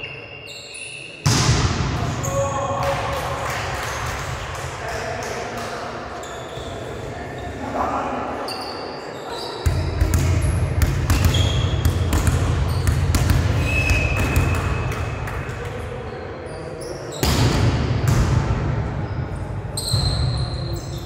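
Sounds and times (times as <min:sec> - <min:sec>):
short high squeaks: 0:00.0 - 0:01.2.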